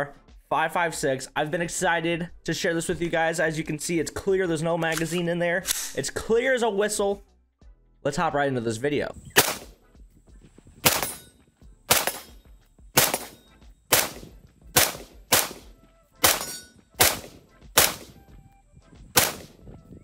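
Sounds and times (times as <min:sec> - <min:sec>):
rifle shots: 0:09.4 - 0:09.8, 0:10.8 - 0:11.3, 0:11.9 - 0:12.4, 0:13.0 - 0:18.2, 0:19.1 - 0:19.6.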